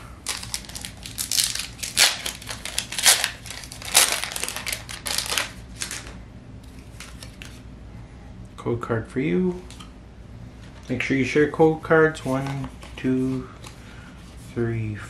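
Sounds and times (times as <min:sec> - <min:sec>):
foil wrapper tearing and crinkling: 0:00.2 - 0:06.1.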